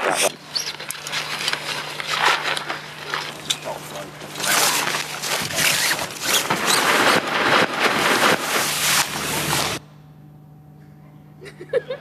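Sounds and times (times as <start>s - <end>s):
tent fabric rustling: 4.3s - 9.8s
zip rasping: 4.3s - 9.8s.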